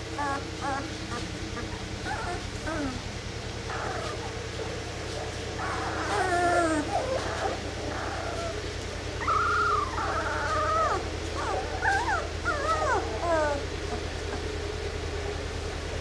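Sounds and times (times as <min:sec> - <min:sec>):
puppies whining: 0:00.0 - 0:15.6
steady low hum: 0:00.0 - 0:16.0.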